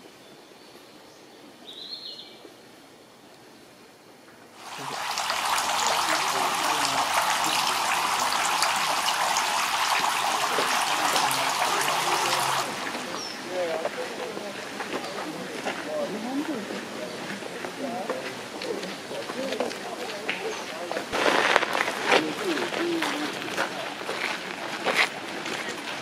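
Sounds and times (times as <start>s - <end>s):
bird chirp: 0.2s - 2.5s, 13.1s - 13.5s
running water splashing: 4.6s - 15.0s.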